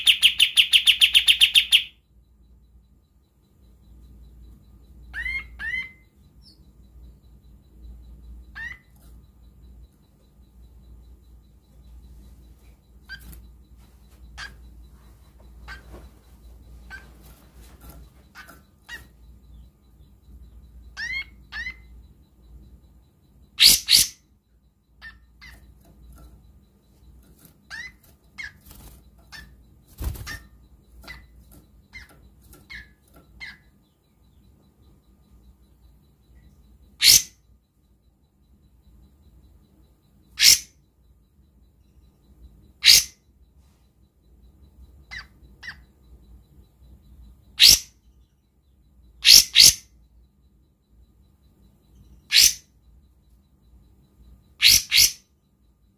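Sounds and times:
songbird chip calls: 0.0 - 2.0, 3.8 - 22.8, 23.4 - 24.3, 24.9 - 37.5, 39.3 - 40.9, 41.8 - 43.3, 44.7 - 50.2, 51.6 - 52.9, 53.7 - 55.4
bird harsh calls: 42.8 - 43.2, 47.6 - 48.0, 49.2 - 49.9, 52.3 - 52.7, 54.6 - 55.2.

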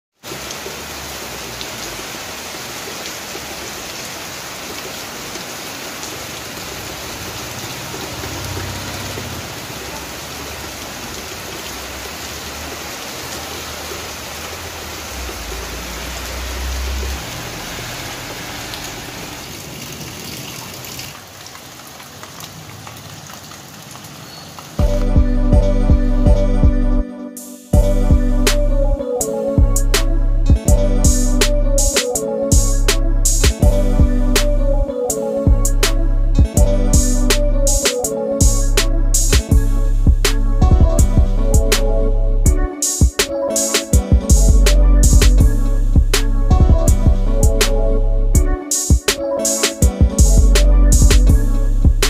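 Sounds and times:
rain on wet pavement: 0.2 - 25.1.

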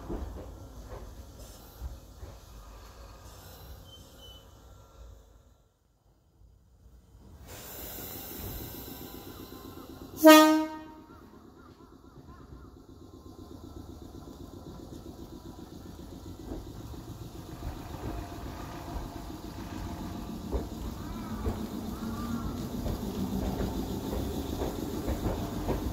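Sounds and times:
train running rumble: 0.0 - 25.9
train horn blast: 10.2 - 11.1.

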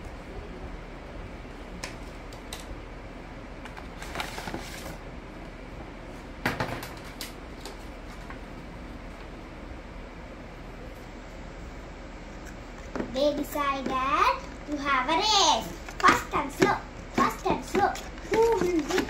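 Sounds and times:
steady low hum: 0.0 - 19.0
cardboard rustling: 17.8 - 19.0.

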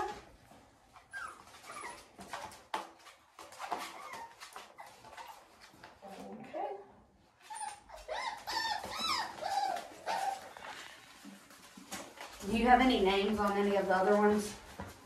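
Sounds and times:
puppies whining: 0.9 - 2.7, 3.4 - 5.8, 7.3 - 11.8.

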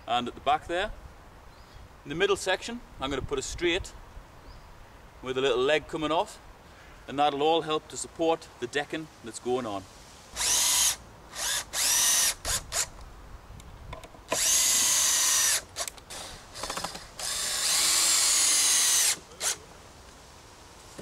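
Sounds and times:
cordless drill whining: 10.4 - 12.9, 14.3 - 19.6.

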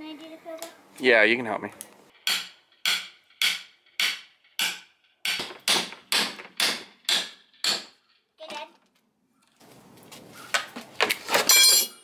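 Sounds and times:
hammer striking crowbar: 2.2 - 8.0.

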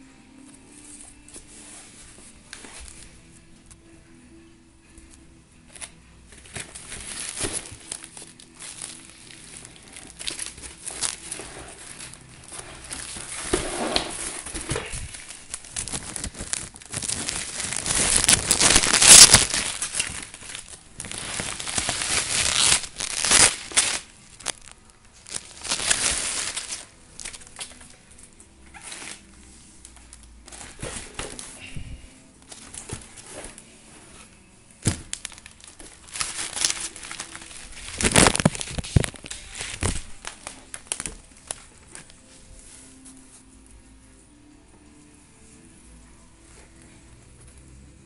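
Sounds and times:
plastic wrapping crinkling: 5.7 - 43.7.

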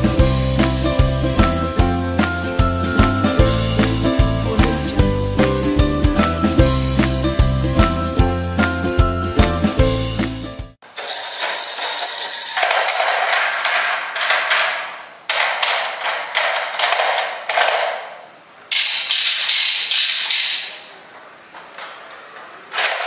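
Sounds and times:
toy spinners clicking rattle: 11.0 - 13.7.

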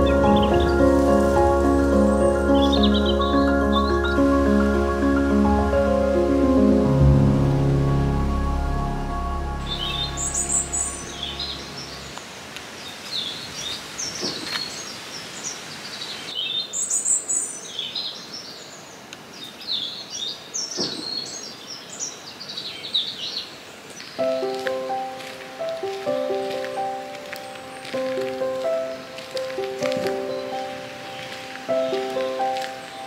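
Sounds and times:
songbirds chirping and singing: 0.0 - 6.9, 9.5 - 33.0
background music: 0.0 - 12.2, 24.2 - 33.0.

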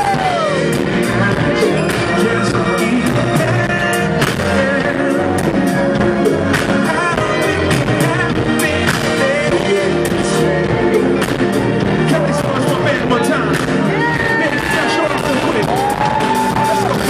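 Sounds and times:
drum kit beat: 0.0 - 17.0
keyboards: 0.0 - 17.0
live soul band playing: 0.0 - 17.0
man singing: 0.0 - 17.0.

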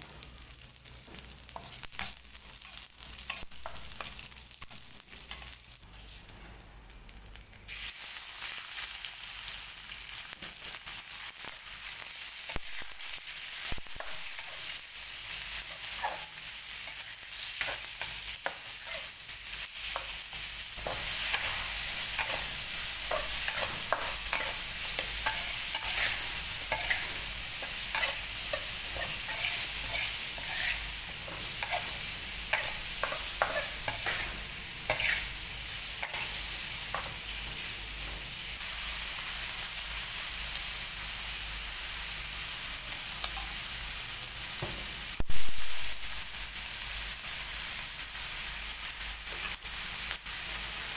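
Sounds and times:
meat sizzling in oil: 0.0 - 50.9
metal spatula scraping wok: 20.8 - 35.4.

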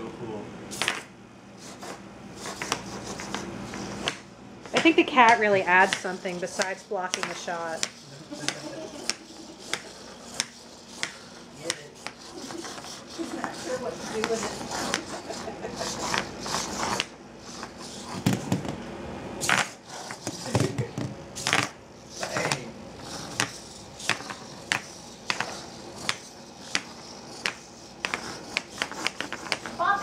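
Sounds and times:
robot feet clattering on tile: 4.0 - 12.2.

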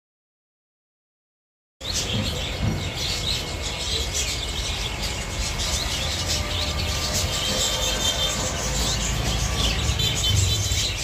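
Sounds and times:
caged birds chirping: 1.8 - 11.0.

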